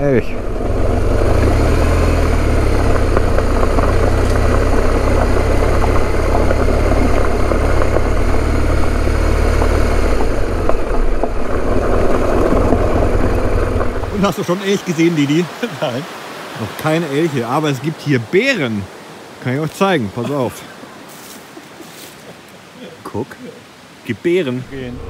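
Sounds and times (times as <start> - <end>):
motorcycle engine running: 0.0 - 14.2
gravel crackling under tyres: 0.0 - 23.4.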